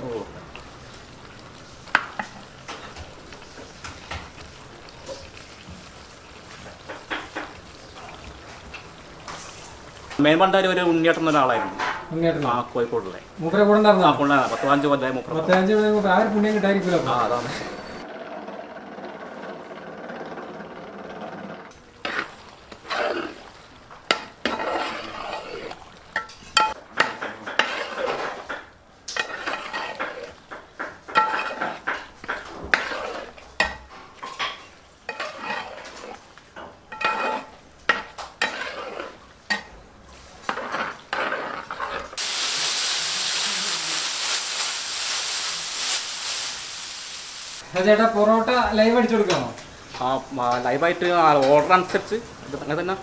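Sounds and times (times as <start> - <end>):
beef sizzling: 0.0 - 18.1, 21.7 - 53.0
metal spatula scraping pan: 22.0 - 23.5, 24.1 - 36.2, 36.9 - 42.2
steady hiss: 42.2 - 48.3.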